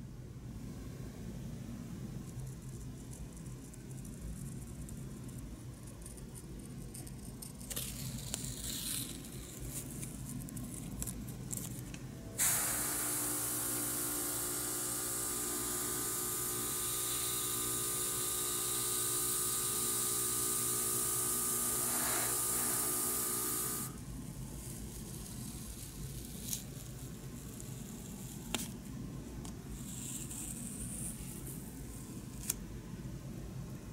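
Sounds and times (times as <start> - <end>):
steady hum: 0.0 - 33.9
airbrush spraying hiss: 12.4 - 24.0.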